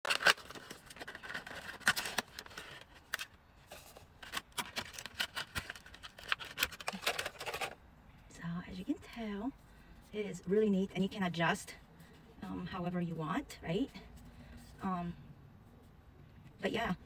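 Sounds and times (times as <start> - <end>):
packaging crackling and clicking: 0.0 - 7.8.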